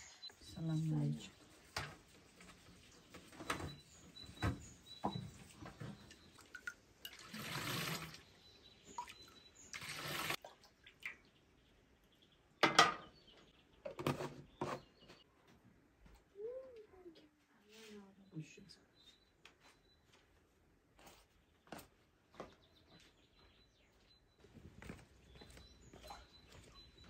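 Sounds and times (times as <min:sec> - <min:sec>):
milk pouring into jug: 0:06.5 - 0:08.2, 0:09.7 - 0:10.4.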